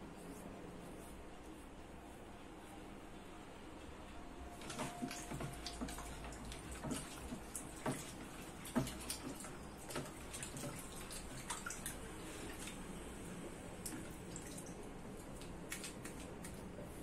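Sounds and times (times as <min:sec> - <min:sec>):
water splashing and dripping: 0:04.6 - 0:13.0, 0:13.7 - 0:16.8.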